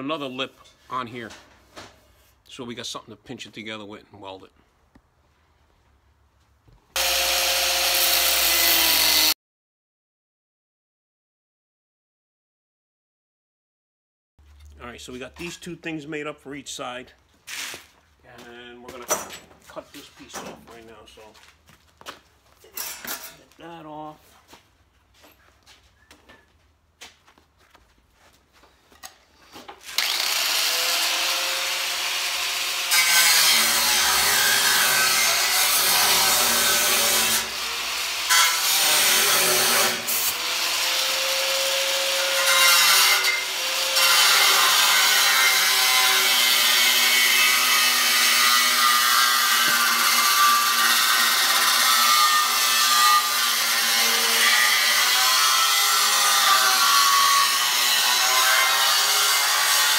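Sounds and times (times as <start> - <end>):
angle grinder cutting steel: 7.0 - 9.4, 29.8 - 59.9.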